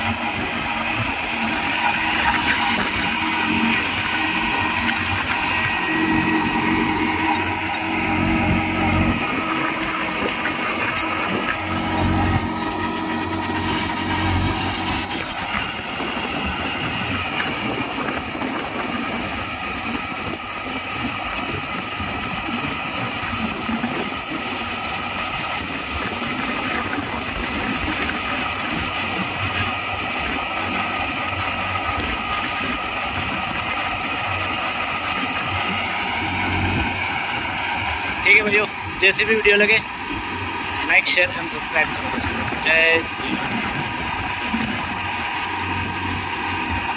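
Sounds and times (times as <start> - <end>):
tractor diesel engine running: 0.0 - 46.9.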